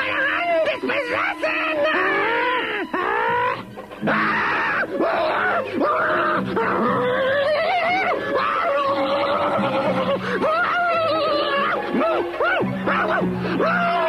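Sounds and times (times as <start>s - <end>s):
man groaning and yelling: 10.3s - 14.0s.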